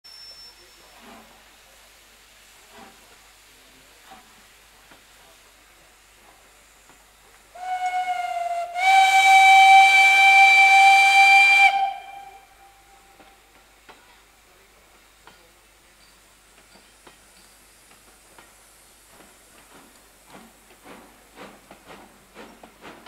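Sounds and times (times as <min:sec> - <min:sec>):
rushing steam: 0:00.1 - 0:23.0
steam locomotive whistle: 0:07.6 - 0:13.2.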